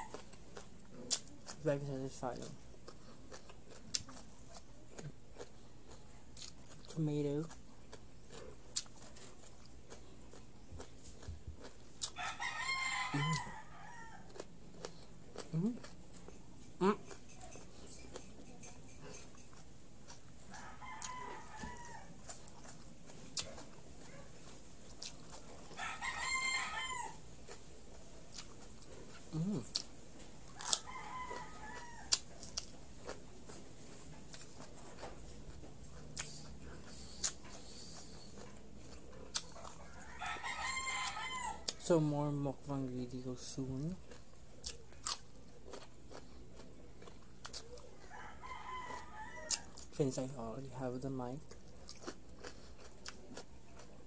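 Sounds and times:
chewing clicks: 2.4s - 12.2s, 34.3s - 39.9s, 44.0s - 47.9s, 51.4s - 54.0s
rooster crowing: 12.1s - 14.4s, 20.4s - 22.3s, 25.7s - 27.2s, 30.6s - 32.3s, 39.7s - 41.8s, 47.9s - 49.8s.

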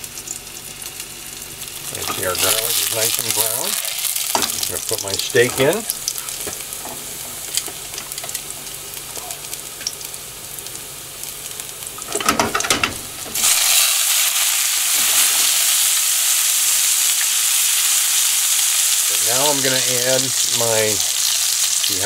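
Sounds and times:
garlic crackling in hot oil: 0.0s - 22.0s
steak sizzling in a pan: 0.0s - 22.0s
knocks and clatters: 12.1s - 13.1s.

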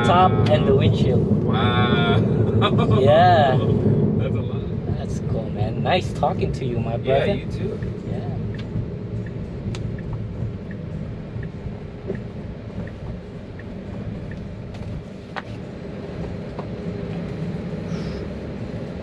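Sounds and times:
road and tyre rumble in car: 0.0s - 19.0s
faint regular tick: 7.8s - 10.8s, 11.4s - 15.5s.

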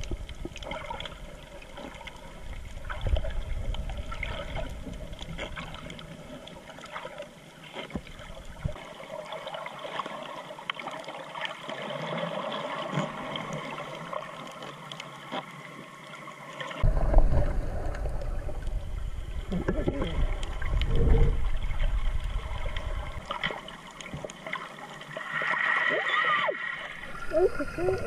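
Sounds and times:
small clicks and crackles: 0.0s - 25.6s
water rushing against camera: 0.0s - 28.0s
muffled underwater hiss: 13.2s - 28.0s.

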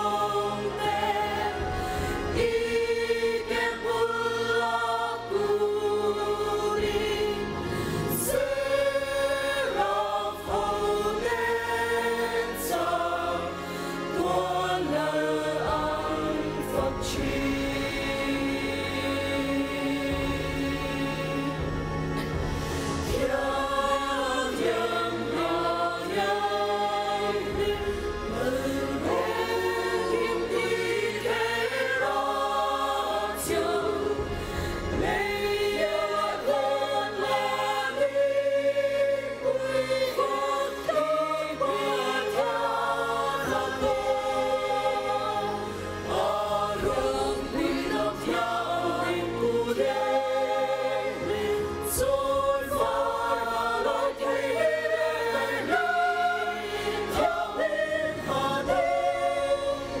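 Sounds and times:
choir singing a hymn: 0.0s - 60.0s.

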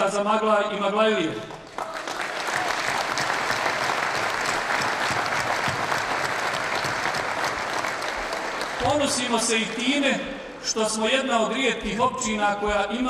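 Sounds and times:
audience applauding: 1.5s - 9.8s.

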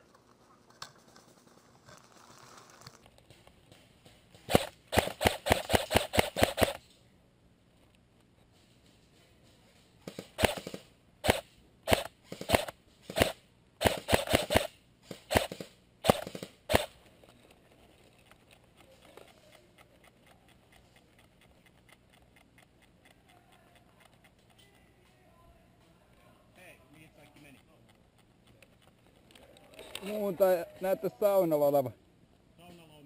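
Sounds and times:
airsoft rifle shots: 4.3s - 6.9s, 10.0s - 17.0s.

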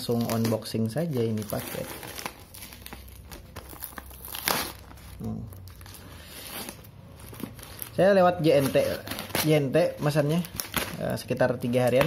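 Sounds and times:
plastic mailer crinkling and tearing: 0.0s - 12.0s.

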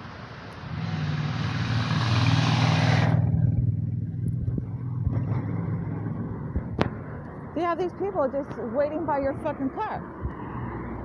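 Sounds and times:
car driving past: 0.4s - 7.2s.

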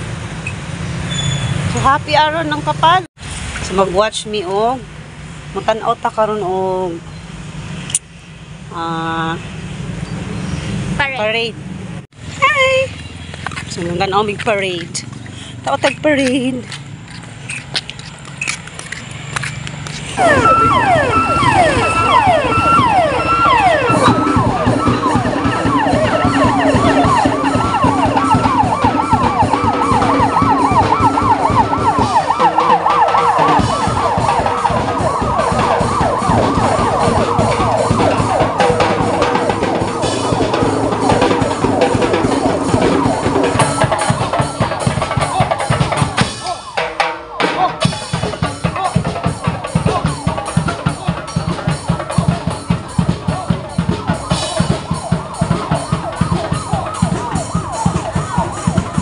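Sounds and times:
marching drums: 12.2s - 17.5s, 19.5s - 59.0s
rising and falling tone: 20.1s - 59.0s
siren yelping: 20.2s - 59.0s.

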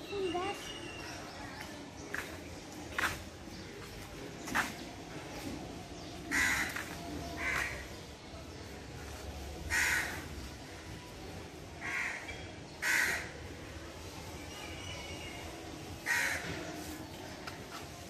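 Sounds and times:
crow cawing: 6.3s - 6.7s, 9.7s - 10.2s, 11.8s - 13.3s.

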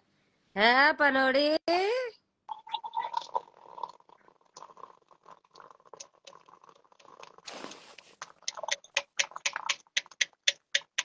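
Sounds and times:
scattered clicks: 8.0s - 11.0s.

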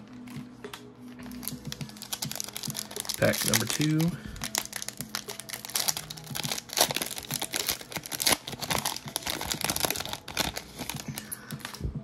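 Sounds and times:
plastic wrapper crinkling and tearing: 1.2s - 11.8s.

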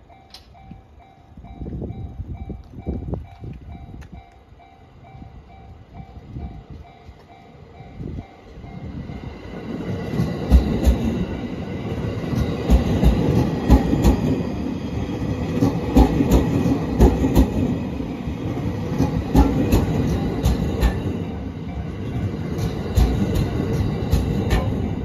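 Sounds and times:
level crossing warning bell: 0.0s - 9.6s, 20.0s - 23.9s
electric train passing: 0.0s - 25.0s
train wheels clacking on rail joints: 9.9s - 11.4s, 12.0s - 25.0s.

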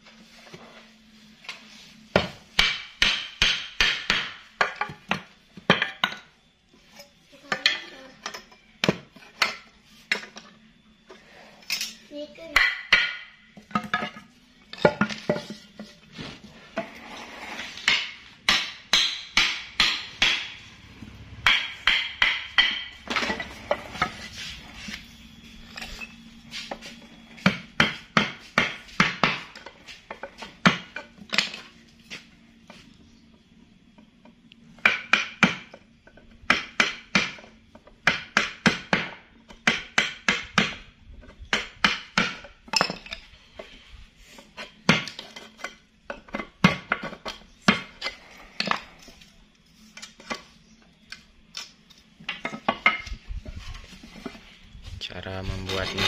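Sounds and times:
hammer striking metal: 17.9s - 24.2s.

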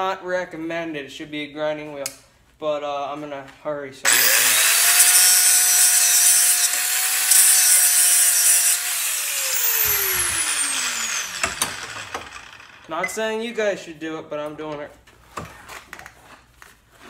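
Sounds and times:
angle grinder grinding steel: 4.1s - 13.4s.

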